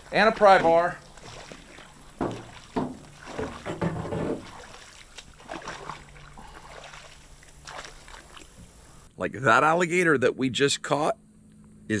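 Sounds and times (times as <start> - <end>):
pole splashing through water: 0.0 - 8.8.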